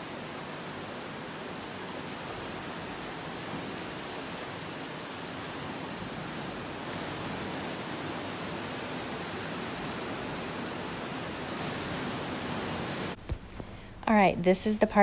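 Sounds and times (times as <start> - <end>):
ocean surf breaking: 0.0 - 13.7.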